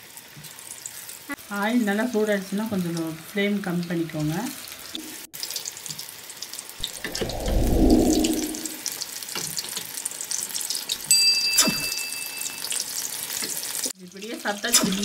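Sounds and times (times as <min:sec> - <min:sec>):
hot oil sizzling and crackling: 0:00.0 - 0:07.0, 0:09.0 - 0:15.0
low swell of sound: 0:06.8 - 0:08.9.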